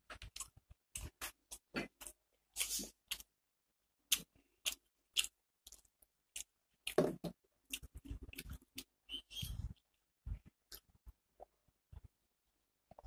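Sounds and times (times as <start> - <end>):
person chewing crunchy food: 0.0 - 3.4, 4.0 - 10.0.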